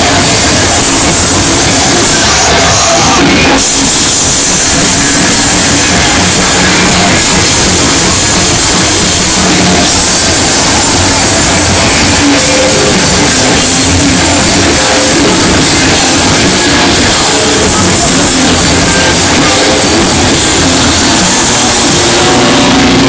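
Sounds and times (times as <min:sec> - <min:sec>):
bass guitar: 0:00.0 - 0:23.0
drum kit: 0:00.0 - 0:23.0
electric guitar: 0:00.0 - 0:23.0.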